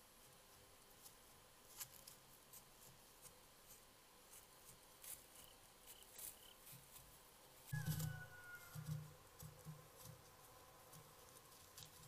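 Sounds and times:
faint high chirps: 0:07.7 - 0:09.0.

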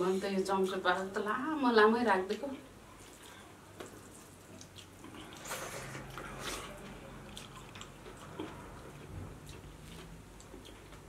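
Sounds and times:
wet chewing: 0:02.9 - 0:11.0.

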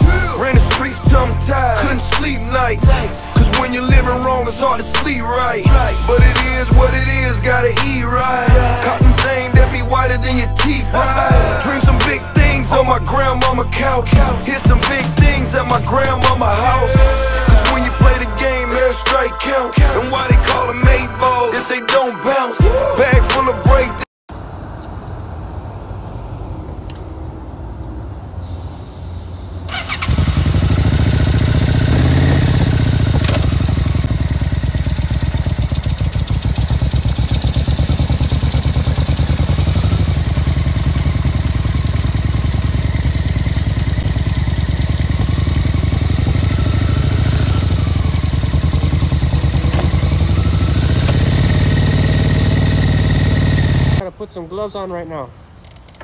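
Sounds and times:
motorcycle engine revving: 0:00.0 - 0:19.3, 0:29.6 - 0:54.0.

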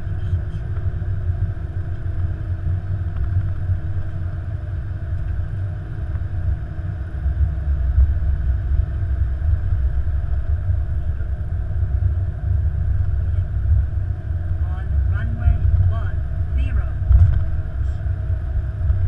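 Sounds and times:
aircraft taxiing rumble: 0:00.0 - 0:19.0
faint steady hum: 0:00.0 - 0:19.0.

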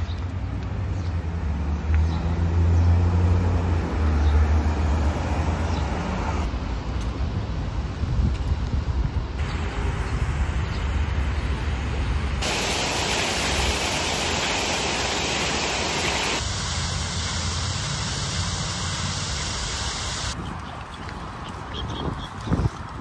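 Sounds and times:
low rumble of traffic: 0:00.0 - 0:23.0
steady hiss: 0:12.4 - 0:20.4.

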